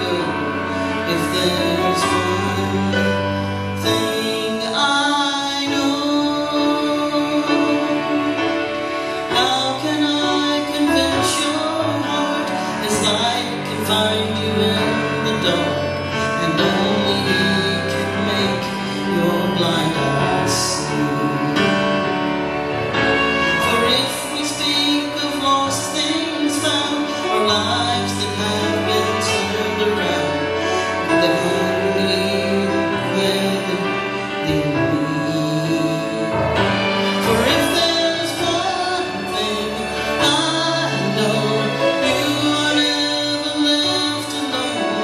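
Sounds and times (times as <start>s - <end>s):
instrumental accompaniment: 0.0s - 45.0s.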